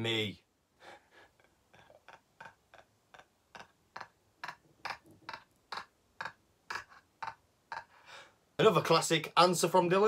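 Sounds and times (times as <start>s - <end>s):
man laughing breathlessly: 0.8s - 8.3s.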